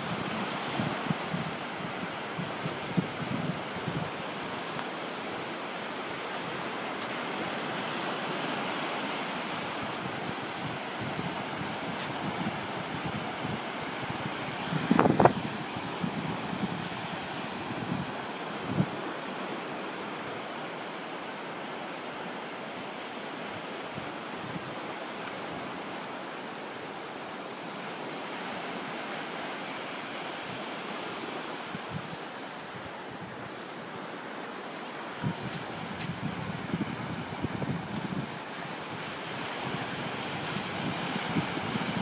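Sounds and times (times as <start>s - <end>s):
wind on microphone: 0.0s - 4.9s, 7.4s - 19.4s, 31.5s - 33.7s, 35.1s - 42.0s
ocean surf breaking: 0.0s - 42.0s.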